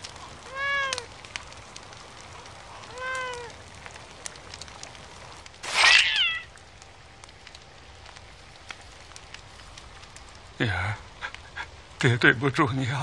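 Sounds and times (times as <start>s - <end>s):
cat meowing: 0.4s - 1.1s, 2.8s - 3.6s, 5.7s - 6.5s.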